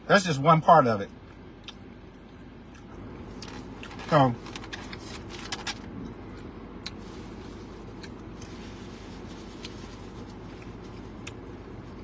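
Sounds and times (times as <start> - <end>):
car cabin hum: 0.0 - 12.0
paper and foil wrappers rustling: 3.4 - 5.9, 7.0 - 11.1.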